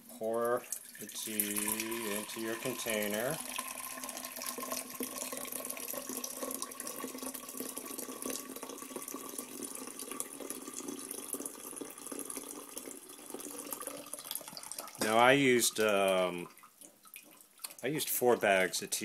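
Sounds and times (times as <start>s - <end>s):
tea pouring into jar: 0.3s - 17.9s.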